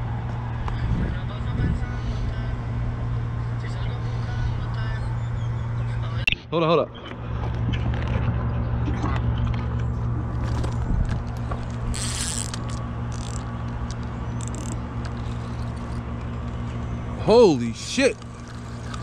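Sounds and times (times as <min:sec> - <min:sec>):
steady low hum: 0:00.0 - 0:19.0
fishing reel whirring and clicking: 0:11.1 - 0:16.1, 0:18.2 - 0:19.0
brief rasps: 0:11.9 - 0:13.4.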